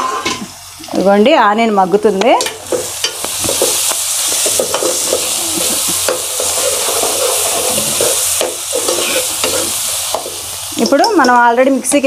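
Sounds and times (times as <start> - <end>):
onions sizzling in oil: 0.0 - 12.0
metal ladle scraping pan: 2.7 - 11.3.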